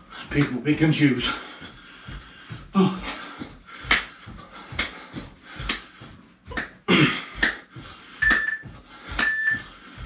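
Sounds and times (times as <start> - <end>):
heavy breathing: 0.0 - 10.0
sharp hand clap: 3.8 - 5.0, 5.6 - 5.9, 6.6 - 9.6
interval timer beep: 8.2 - 9.6.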